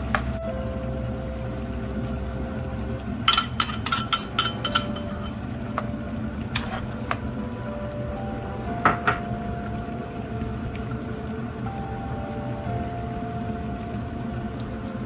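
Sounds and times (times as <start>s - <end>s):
food frying: 0.0s - 15.0s
metal spatula clinking on pan: 3.3s - 5.4s.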